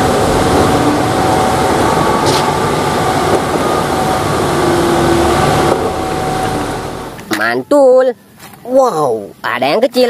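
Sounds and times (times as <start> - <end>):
truck engine drone: 0.0 - 7.4.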